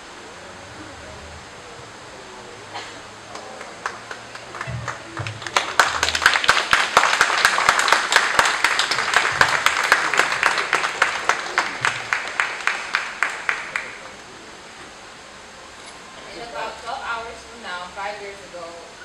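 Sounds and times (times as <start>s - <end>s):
crowd applauding: 3.0s - 14.2s.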